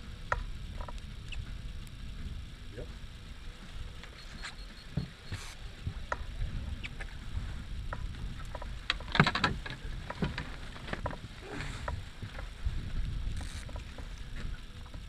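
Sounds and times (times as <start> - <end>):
steady low rumble: 0.0 - 15.0
gear clattering on boat deck: 8.5 - 12.5.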